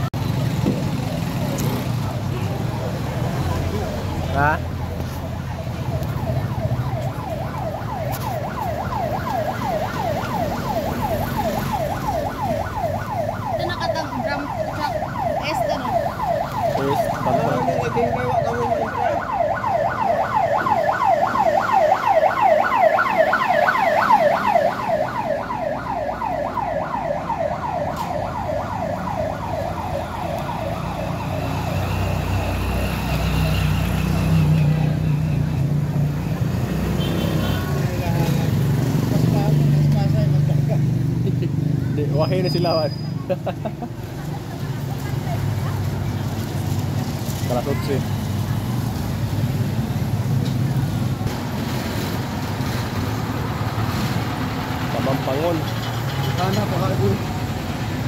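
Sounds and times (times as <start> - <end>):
motor tricycles rumbling past: 0.0 - 58.0
siren yelping: 2.1 - 35.8.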